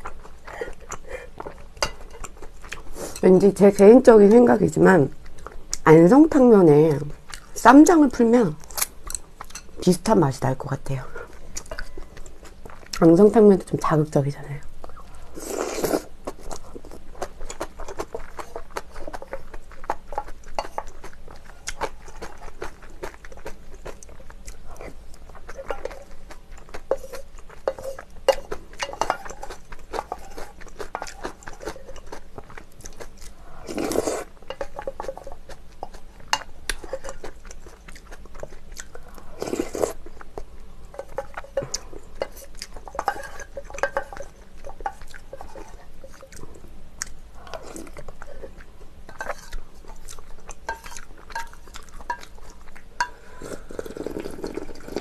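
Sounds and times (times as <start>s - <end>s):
person chewing: 0.0s - 3.2s, 14.8s - 55.0s.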